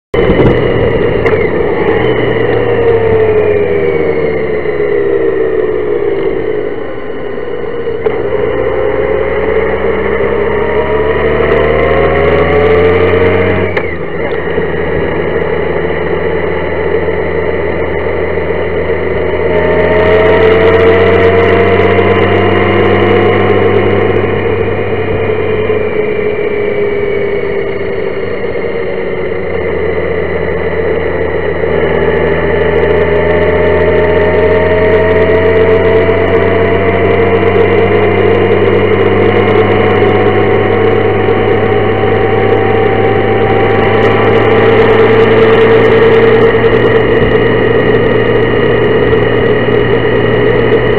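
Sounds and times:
motorcycle engine running: 0.1s - 50.9s
wind and road noise: 0.1s - 50.9s.

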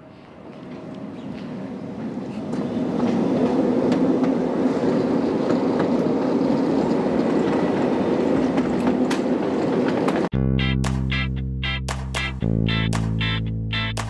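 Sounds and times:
wheels clicking over rail joints: 2.5s - 10.3s.

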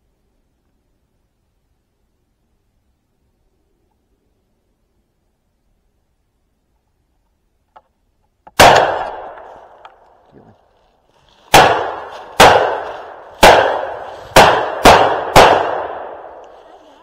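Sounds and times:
shotgun shots with echo: 8.6s - 9.8s, 11.5s - 16.4s.

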